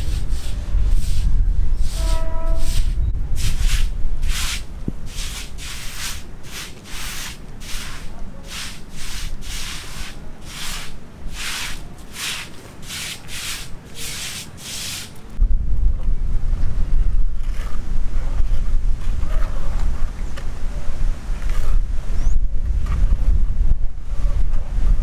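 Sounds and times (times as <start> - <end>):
wind rumble on microphone: 0.0 - 6.4, 15.3 - 25.0
trowel scraping bucket: 1.8 - 15.2.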